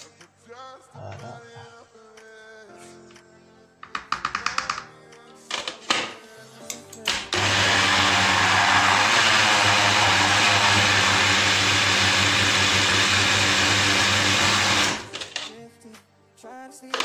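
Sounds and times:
small electric grinder running: 0:07.3 - 0:15.1.

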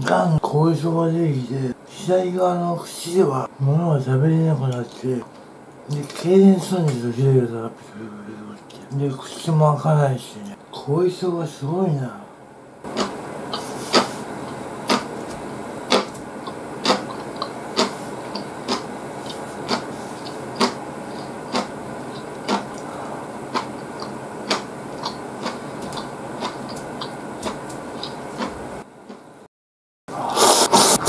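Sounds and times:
person chewing noodles: 0:12.9 - 0:29.2.

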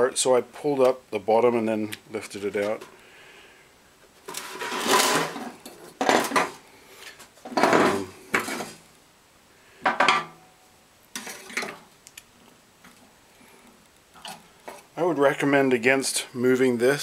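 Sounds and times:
metal and plastic knocks and scrapes: 0:07.4 - 0:08.8.

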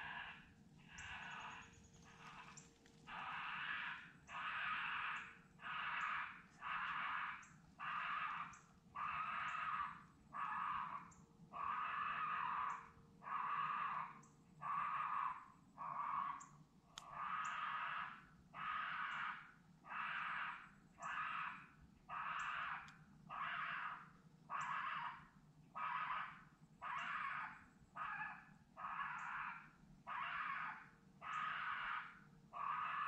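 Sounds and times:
raccoon call harsh squalls: 0:00.0 - 0:33.0.

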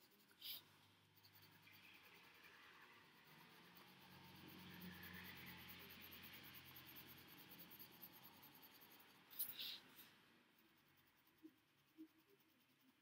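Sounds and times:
pencil scratching on paper: 0:00.0 - 0:13.0.

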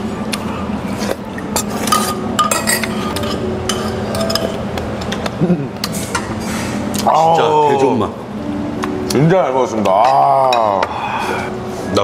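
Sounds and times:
spoons clinking on earthenware bowls: 0:01.6 - 0:04.6.

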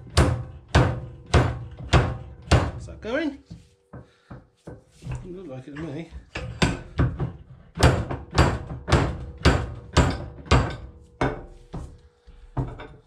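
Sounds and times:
hammer striking metal: 0:00.0 - 0:02.9, 0:06.3 - 0:12.0.

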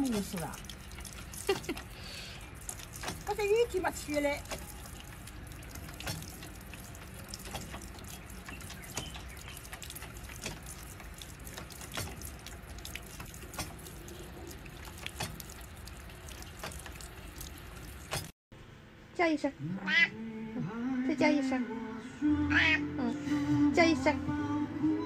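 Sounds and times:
water trickling into metal basin: 0:00.0 - 0:18.3
water dripping and splashing: 0:00.0 - 0:18.4.

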